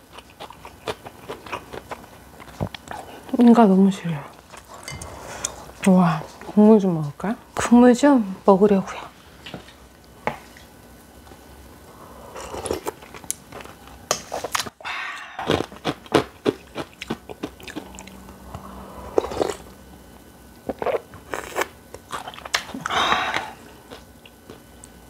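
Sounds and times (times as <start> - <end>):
crisp crunching and chewing: 0.0 - 3.0, 15.4 - 18.4, 20.6 - 25.0.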